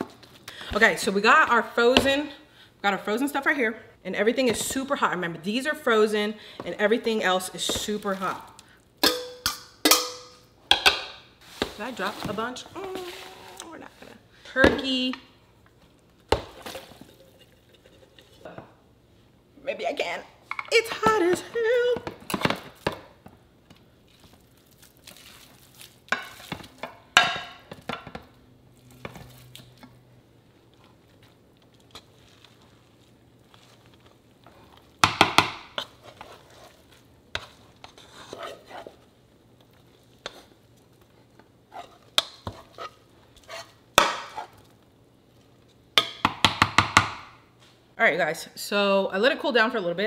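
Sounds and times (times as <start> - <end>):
utensil scraping a pan: 35.7 - 39.1, 41.7 - 44.6.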